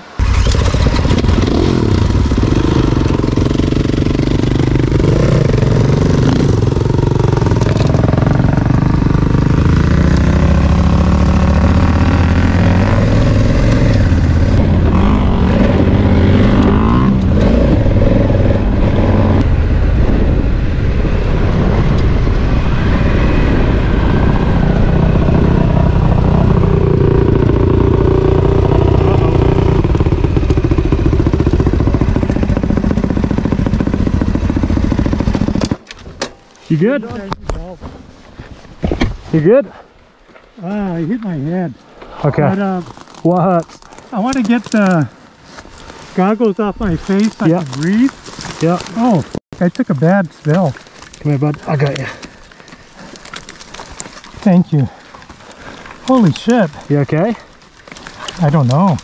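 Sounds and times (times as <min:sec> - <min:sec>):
motorcycle engine running: 0:00.0 - 0:20.6, 0:23.3 - 0:35.8.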